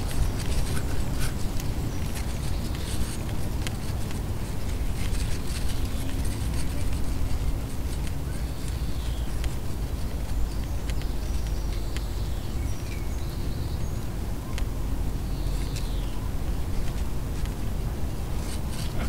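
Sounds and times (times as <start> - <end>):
vent flaps ticking and clicking: 0.0 - 12.1
wind rumbling on microphone: 0.0 - 19.0.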